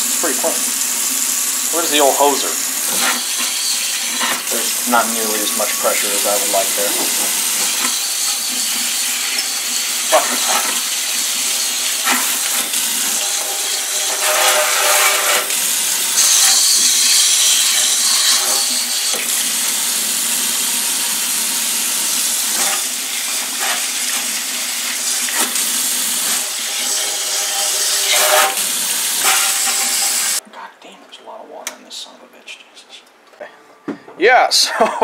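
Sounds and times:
water spraying onto metal fins: 20.5s - 30.4s.

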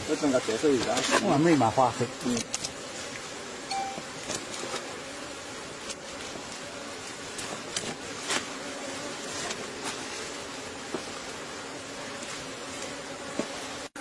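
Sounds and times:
bees buzzing: 0.0s - 14.0s
metal spoon scraping honeycomb: 0.5s - 3.3s.

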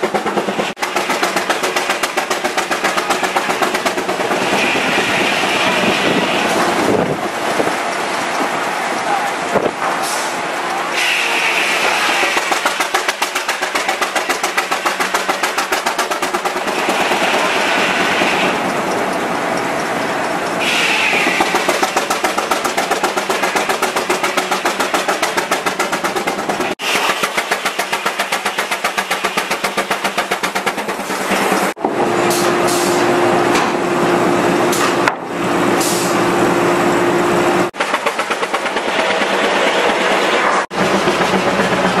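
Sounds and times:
steam engine exhaust chuffing: 0.0s - 7.3s, 11.0s - 19.1s, 19.8s - 33.0s, 37.7s - 42.0s.

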